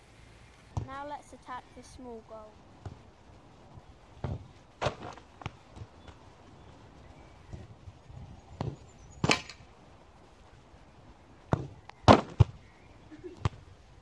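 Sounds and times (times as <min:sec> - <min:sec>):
football kicked thuds: 0:00.7 - 0:00.9, 0:02.8 - 0:03.1, 0:04.2 - 0:06.2, 0:08.6 - 0:09.5, 0:11.5 - 0:12.6, 0:13.4 - 0:13.6.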